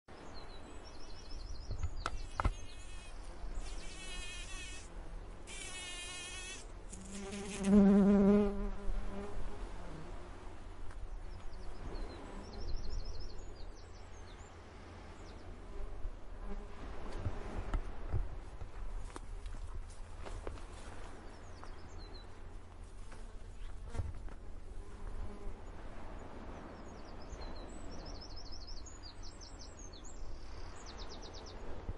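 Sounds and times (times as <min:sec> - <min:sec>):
bees buzzing: 0:02.2 - 0:09.3.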